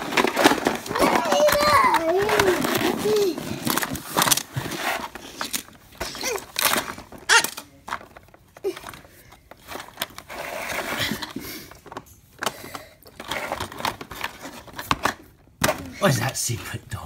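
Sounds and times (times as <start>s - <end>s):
plastic toy knocks and rattles: 0.0s - 4.5s
toy car pushed: 0.0s - 7.7s, 9.6s - 11.4s, 12.4s - 15.1s.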